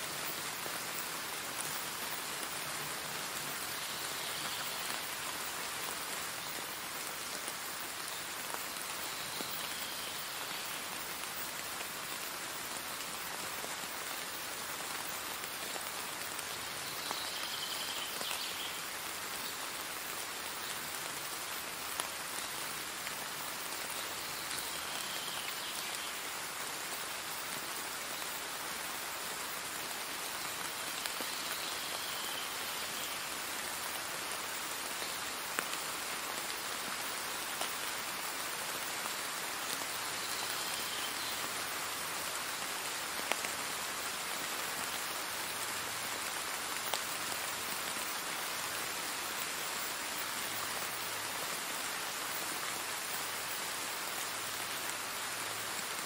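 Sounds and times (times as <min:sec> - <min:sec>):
steady rain: 0:00.0 - 0:56.0.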